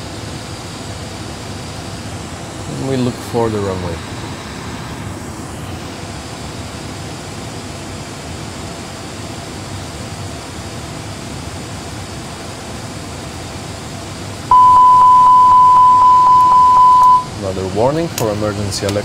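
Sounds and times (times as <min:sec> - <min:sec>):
loud steady warning tone: 0:14.5 - 0:17.5.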